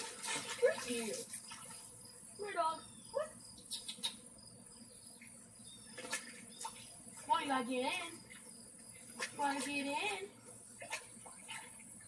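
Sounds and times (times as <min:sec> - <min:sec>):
hand swishing water: 0:00.0 - 0:01.8
insects chirring: 0:00.0 - 0:12.0.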